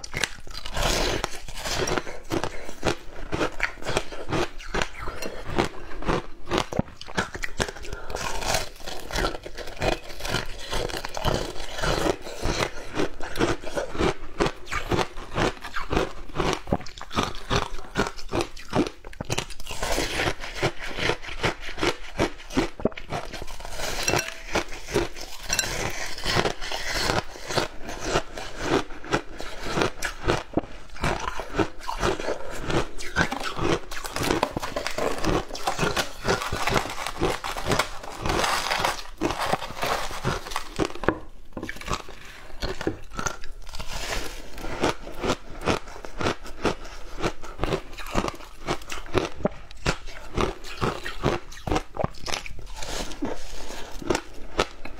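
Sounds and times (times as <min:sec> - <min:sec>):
ice crunching as chewed: 0:00.0 - 0:54.9.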